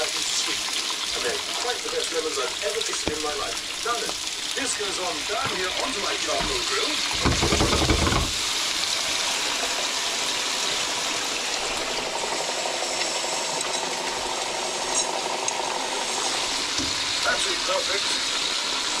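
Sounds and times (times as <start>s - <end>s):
burgers sizzling in fat: 0.0s - 19.0s
low thump: 6.4s - 8.4s.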